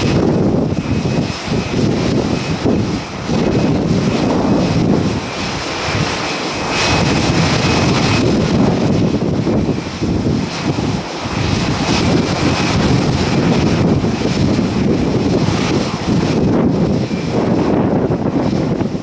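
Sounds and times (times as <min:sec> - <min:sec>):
high whine: 0:00.0 - 0:19.0
jet aircraft noise: 0:00.0 - 0:19.0
wind buffeting microphone: 0:00.0 - 0:19.0.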